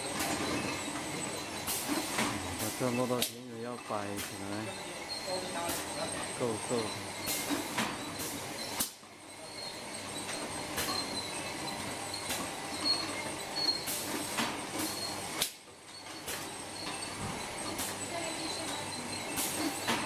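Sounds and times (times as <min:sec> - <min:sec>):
short pneumatic hisses: 0:19.3 - 0:20.0.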